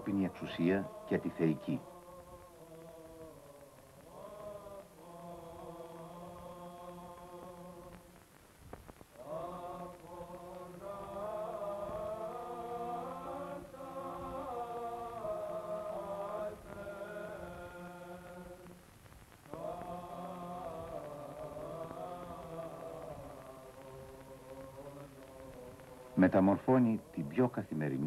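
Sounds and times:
choir chanting: 0.0 - 8.2, 9.2 - 18.8, 19.5 - 28.0.

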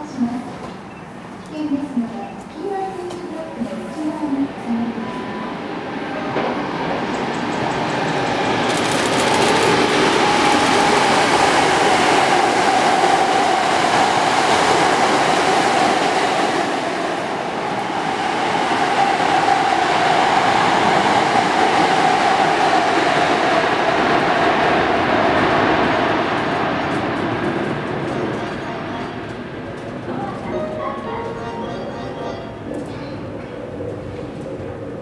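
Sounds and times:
train whine: 3.3 - 35.0
train wheels rumbling on rail: 6.0 - 35.0
run of clicks: 7.1 - 10.1.

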